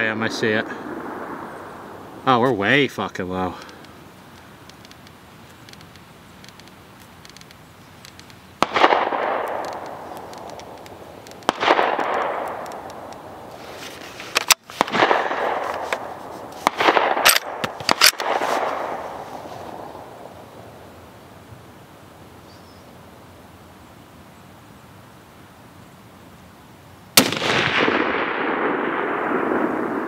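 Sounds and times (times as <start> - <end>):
rifle shots with rolling echo: 0.0 - 4.2, 8.6 - 20.7, 27.2 - 30.0.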